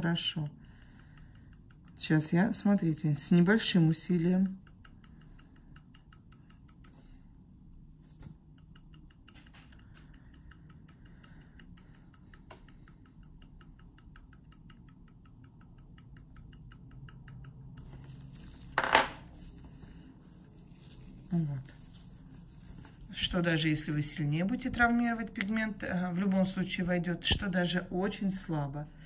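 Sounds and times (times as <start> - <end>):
needle tapping fine ticks: 0.0 - 18.7.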